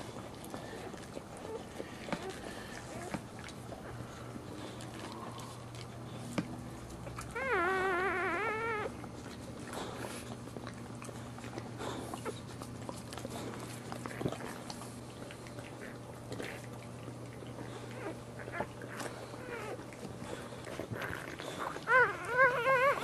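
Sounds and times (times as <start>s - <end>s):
low steady hum: 0.0s - 23.0s
dog whining: 0.6s - 4.1s, 7.0s - 11.1s, 17.6s - 23.0s.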